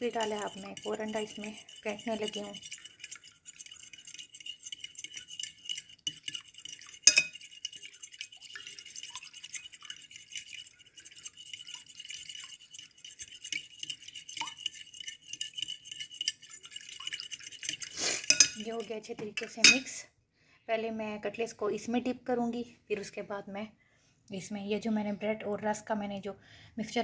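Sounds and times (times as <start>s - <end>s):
fork beating eggs in glass bowl: 0.0s - 19.9s.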